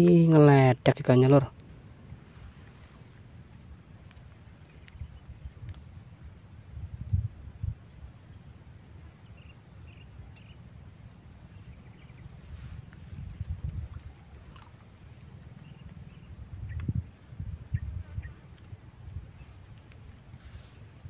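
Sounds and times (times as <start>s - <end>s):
bird chirping: 1.7s - 12.8s, 15.6s - 18.4s.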